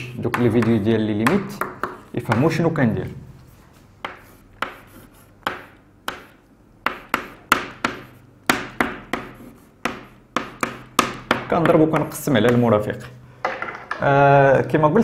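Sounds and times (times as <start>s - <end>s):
chalk tapping on blackboard: 0.3s - 2.6s, 4.0s - 12.7s.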